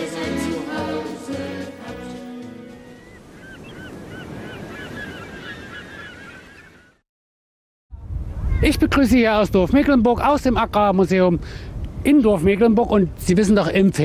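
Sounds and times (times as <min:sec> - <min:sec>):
choral music: 0:00.0 - 0:03.2
bird calls: 0:02.7 - 0:07.0.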